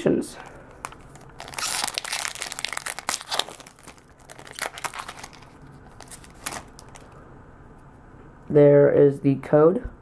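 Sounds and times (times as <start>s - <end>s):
foil wrapper crinkling: 0.7s - 7.2s
foil wrapper tearing: 0.8s - 7.1s.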